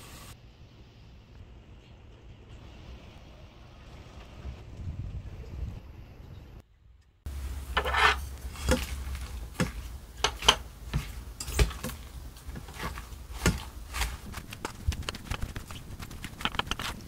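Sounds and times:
wet rustle of stirred rice: 7.3s - 17.0s
wooden utensil scraping metal pot: 7.3s - 17.0s.

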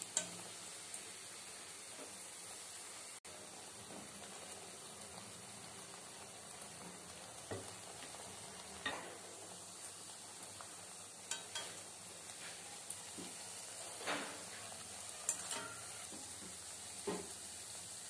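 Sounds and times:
oil sizzling: 0.0s - 18.0s
wire skimmer tapping pan: 15.3s - 15.9s.

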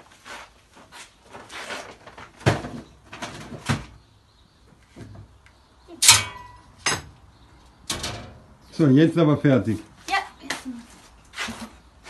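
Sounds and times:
metal lid clanging shut: 6.0s - 7.1s, 7.9s - 8.4s
knocks and rustles in metal chest: 7.9s - 8.5s.

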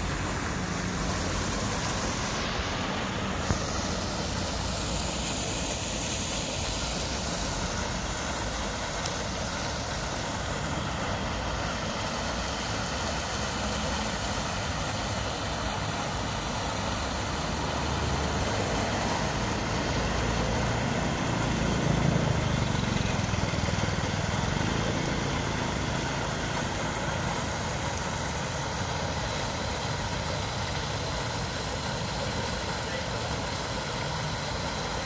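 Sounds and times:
outdoor street noise: 0.0s - 35.0s
vehicle engine rumble passing: 16.9s - 27.7s.

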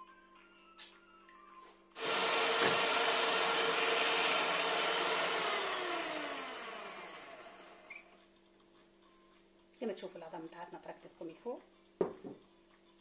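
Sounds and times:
electric hand mixer whirring: 2.0s - 8.0s
mixer motor winding down: 2.0s - 8.1s.

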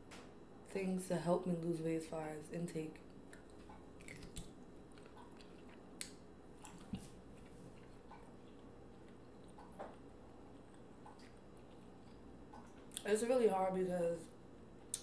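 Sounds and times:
chewing seafood close-up: 3.2s - 13.1s
wet mouth clicks and squishes: 3.3s - 9.8s.

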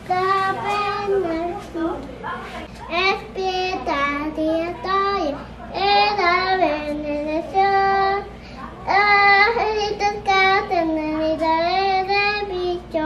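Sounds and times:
boy singing: 0.0s - 2.0s, 8.9s - 13.0s.

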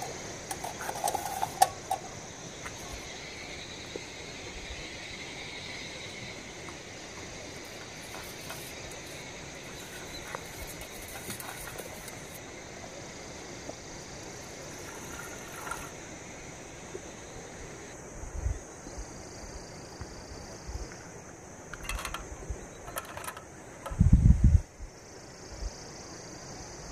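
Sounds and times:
spoon clinking in metal cup: 0.0s - 2.2s, 21.8s - 23.4s
steady background hiss: 0.0s - 26.9s
milk pouring into pot: 14.5s - 16.0s.

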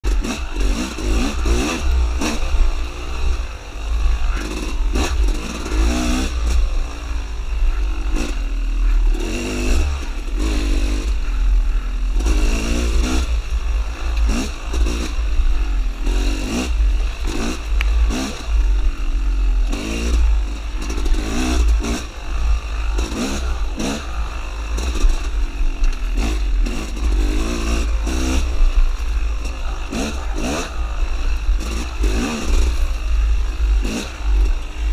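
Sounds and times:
dirt bike engine revving: 0.0s - 34.9s
low rumble: 9.8s - 34.9s.

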